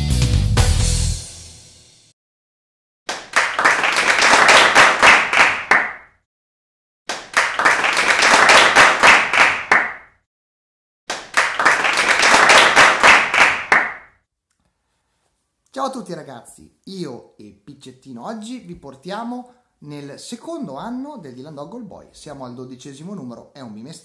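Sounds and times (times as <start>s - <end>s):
crowd clapping: 3.1s - 6.1s, 7.1s - 10.1s, 11.1s - 14.1s.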